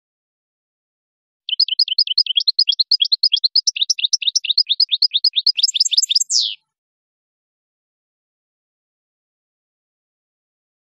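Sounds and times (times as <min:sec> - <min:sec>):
finch singing: 0:01.5 - 0:06.6.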